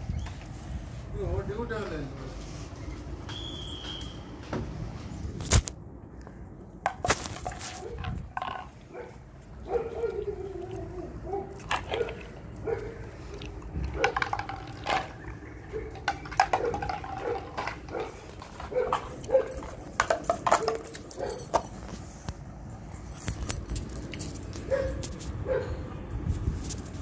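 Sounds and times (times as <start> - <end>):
dog barking and yipping: 8.9 - 13.1, 13.9 - 14.4, 15.6 - 21.6, 24.7 - 25.8
clicks on tile floor: 15.9 - 22.4.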